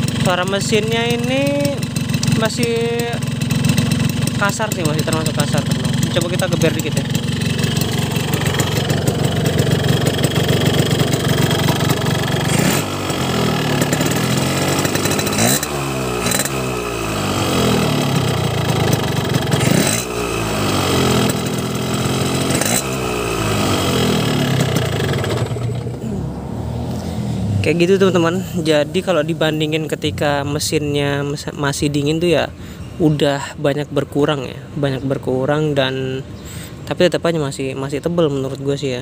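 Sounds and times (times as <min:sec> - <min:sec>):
two-stroke motorcycle engine revving: 0:00.0 - 0:31.0.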